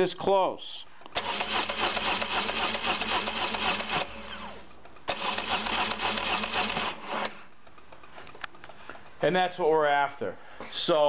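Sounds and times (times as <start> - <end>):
starter motor cranking engine: 1.1 - 7.5.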